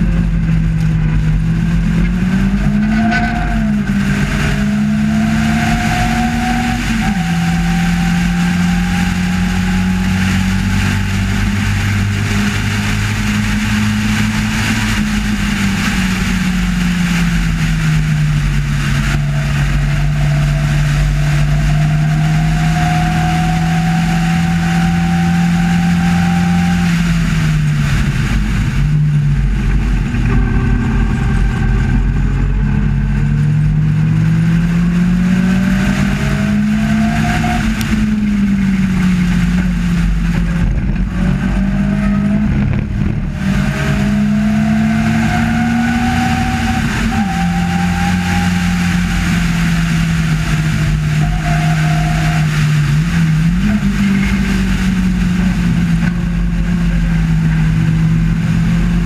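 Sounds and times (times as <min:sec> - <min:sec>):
race car engine: 0:00.0 - 0:59.0
wind rush: 0:00.0 - 0:59.0.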